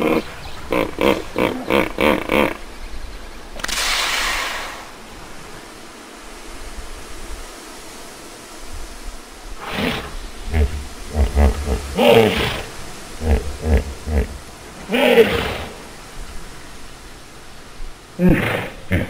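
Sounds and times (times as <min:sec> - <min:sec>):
steady background noise: 0:00.0 - 0:19.0
short blast of hiss: 0:03.6 - 0:05.0
hippo grunting: 0:09.6 - 0:15.8, 0:18.2 - 0:19.0.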